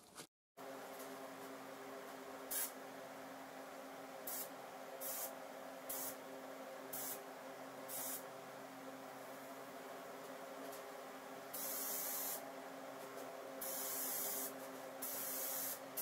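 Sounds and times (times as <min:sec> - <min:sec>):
spray gun hissing bursts: 0:02.5 - 0:02.8, 0:04.3 - 0:05.3, 0:05.9 - 0:06.2, 0:06.9 - 0:07.2, 0:07.9 - 0:08.2, 0:11.5 - 0:12.4, 0:13.6 - 0:16.0.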